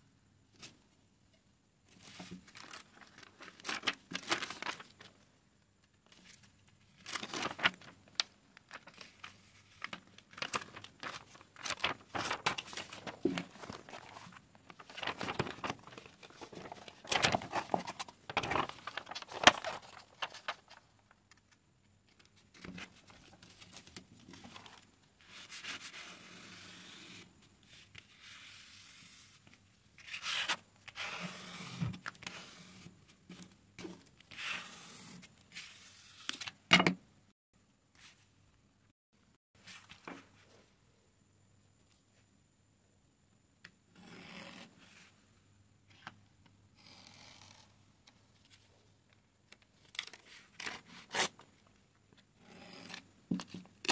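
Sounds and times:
paper sheets rustling and crinkling: 1.9s - 5.2s, 6.0s - 34.6s.

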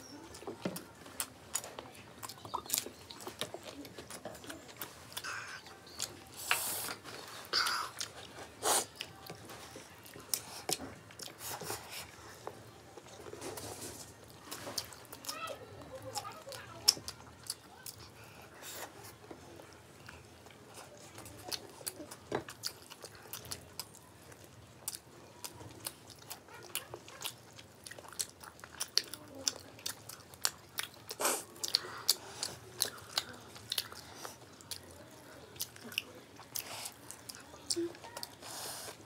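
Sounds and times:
people chewing crunchy food: 0.0s - 39.0s.

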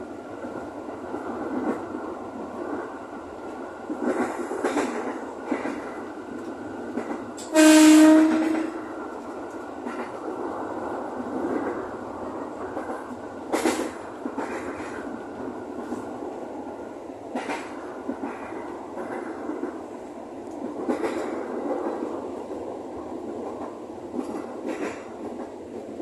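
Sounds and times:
electric train running on track: 0.0s - 26.0s
train wheels clacking: 2.6s - 10.5s, 11.2s - 16.2s, 17.3s - 19.9s, 20.5s - 26.0s
train horn blast: 7.4s - 8.8s.

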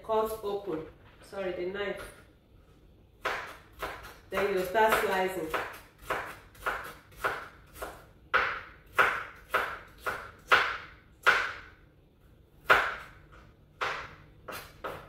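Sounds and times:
knife chopping on cutting board: 3.2s - 11.7s, 12.6s - 13.2s, 13.8s - 15.0s.

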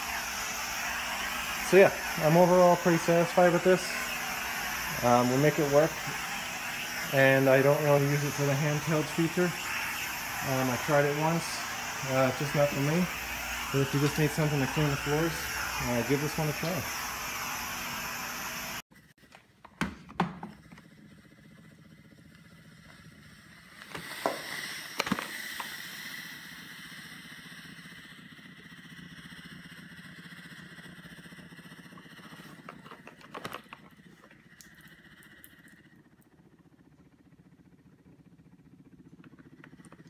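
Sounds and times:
steam mop buzzing: 0.0s - 18.8s, 20.2s - 35.9s
steamer nozzle hissing: 0.0s - 18.8s, 23.6s - 27.9s.

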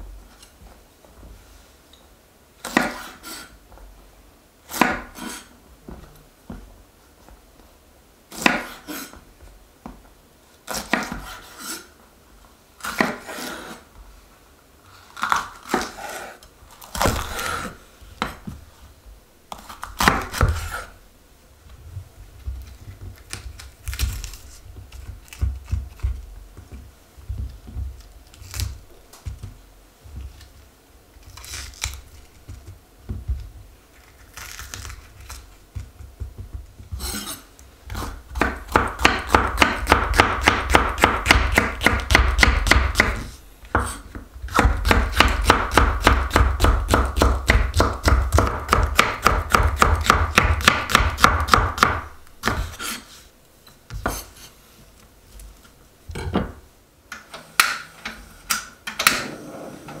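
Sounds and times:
taps and knocks: 35.7s - 37.0s.

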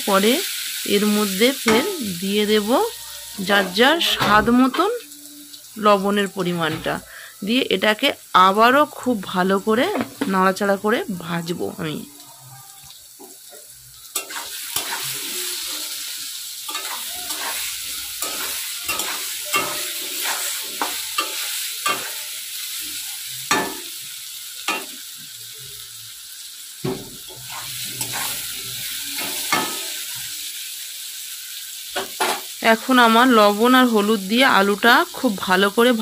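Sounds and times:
potatoes sizzling in hot oil: 0.0s - 36.0s
steel spatula scraping pan: 14.2s - 16.1s, 16.7s - 22.3s, 27.3s - 30.0s.

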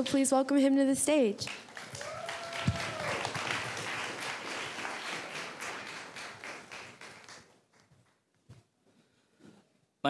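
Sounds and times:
audience applauding: 1.4s - 8.2s.

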